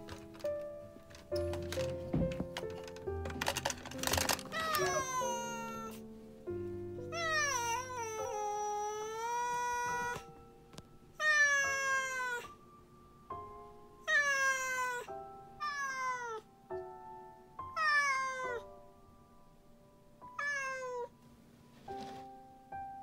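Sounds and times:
quiet background music: 0.0 - 23.0
cat meowing: 4.5 - 6.0, 7.1 - 10.3, 11.2 - 12.6, 14.0 - 16.5, 17.7 - 18.7, 20.3 - 21.1.

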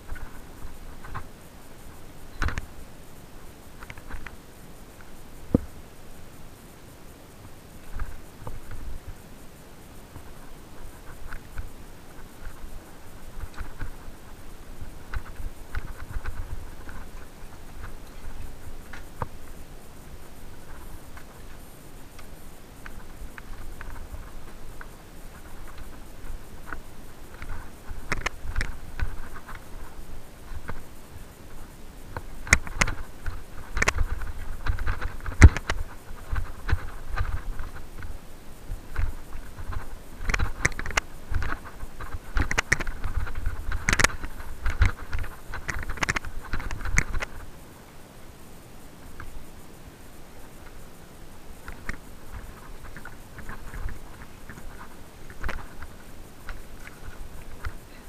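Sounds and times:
bike tyres rolling on stones: 9.9 - 47.7, 49.0 - 58.0
bike clicks and knocks on stones: 32.2 - 38.2, 38.9 - 47.4.

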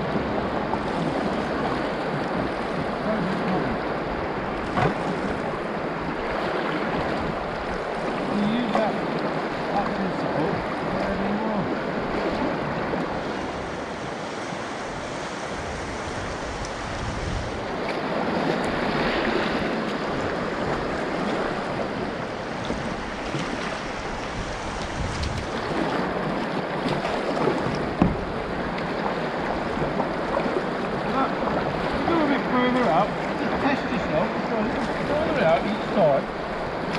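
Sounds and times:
wind on microphone: 0.0 - 32.2
river water rushing over riffles: 0.0 - 36.9.

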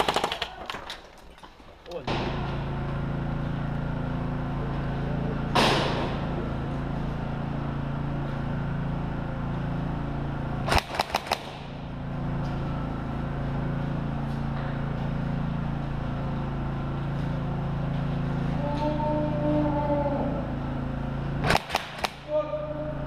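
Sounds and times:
steady low hum: 1.6 - 23.0
sharp airsoft gun shots: 10.7 - 11.8, 21.4 - 22.3.

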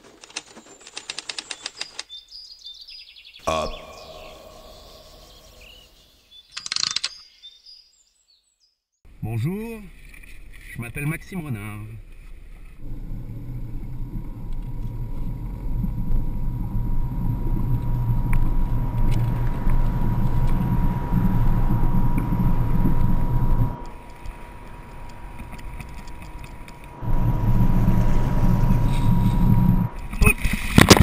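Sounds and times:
car engine idling: 12.0 - 30.2.

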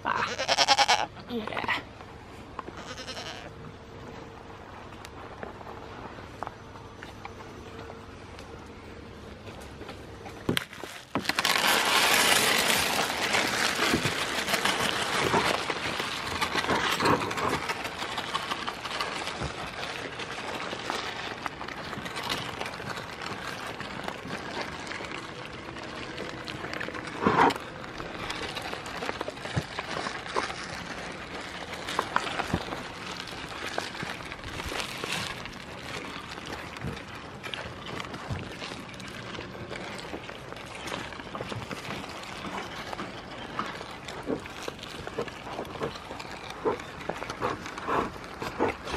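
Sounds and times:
goats crunching seeds: 0.0 - 48.9.

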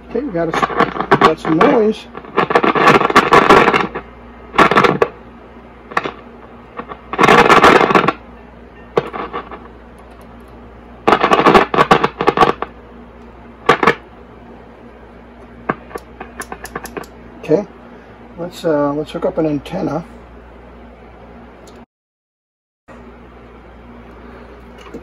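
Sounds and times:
radio crackling static: 0.0 - 9.9, 10.8 - 13.0, 13.6 - 14.2, 14.8 - 17.8
low steady hum: 0.0 - 21.8, 22.9 - 25.0.

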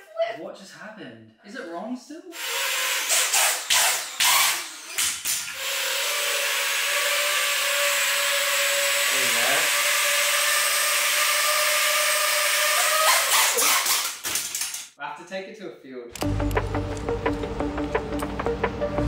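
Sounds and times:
drone motors whining: 2.4 - 14.0.

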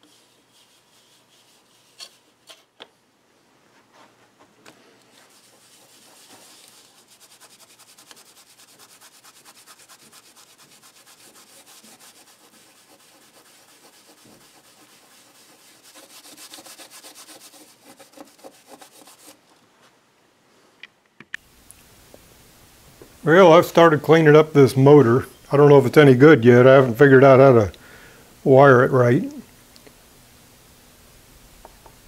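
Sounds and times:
abrasive pad scrubbing metal: 5.2 - 19.4.

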